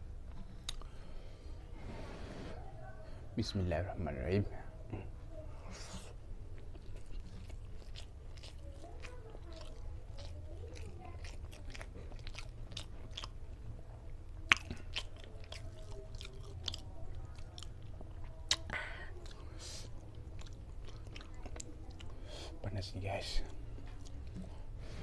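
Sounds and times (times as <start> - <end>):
chewing food: 0.3 - 1.0, 4.9 - 25.0
mouth clicks and smacks: 0.6 - 0.9, 14.4 - 22.1.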